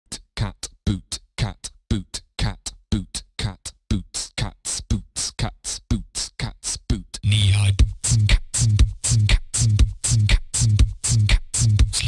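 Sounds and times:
person beatboxing: 0.1s - 12.0s
electronic dance music: 7.2s - 12.0s.

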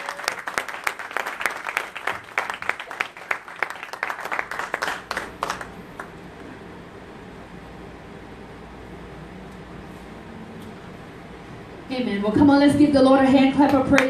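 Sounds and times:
sharp individual claps: 0.0s - 6.1s
congregation applauding: 0.0s - 6.2s
low room noise: 0.0s - 14.0s.

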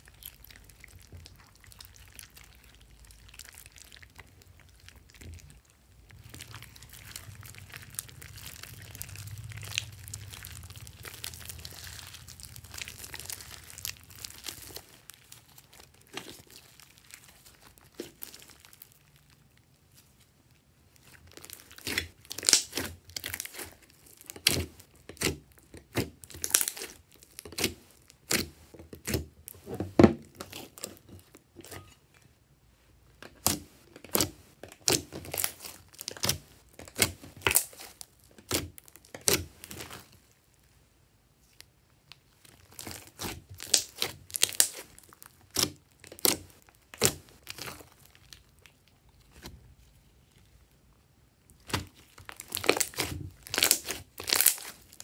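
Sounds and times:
sticky slime popping and crackling: 0.0s - 20.1s, 20.9s - 31.9s, 33.2s - 40.4s, 41.6s - 49.6s, 51.4s - 55.0s.

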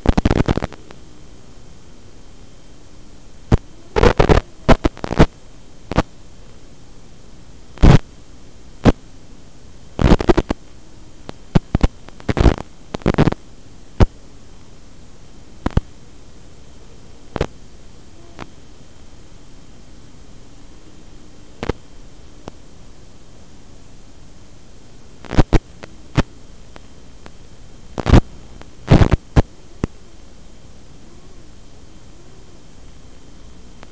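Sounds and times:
static crackles and pops: 0.0s - 33.9s
static hiss: 0.0s - 33.9s.

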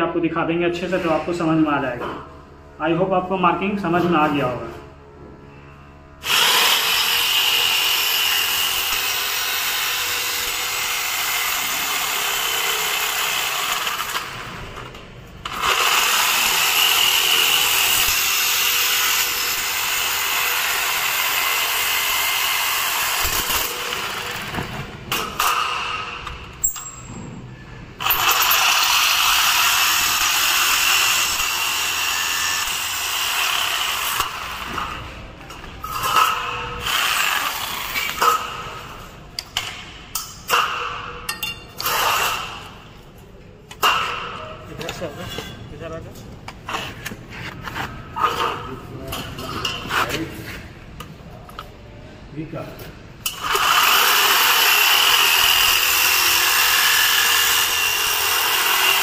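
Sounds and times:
jigsaw cutting through steel: 6.2s - 14.8s, 15.4s - 26.2s, 28.0s - 35.0s, 35.9s - 38.9s, 41.8s - 42.8s, 53.3s - 59.0s.

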